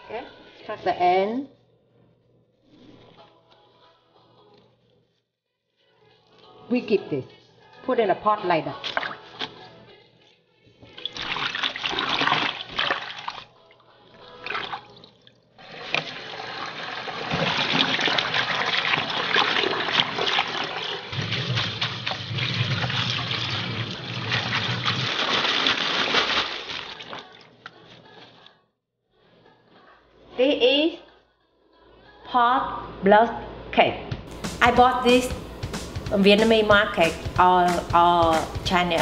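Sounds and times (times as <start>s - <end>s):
tap water splashing and gurgling: 8.8s - 9.5s, 10.8s - 13.5s, 15.6s - 27.4s
hands swishing vegetables in water: 15.6s - 28.2s.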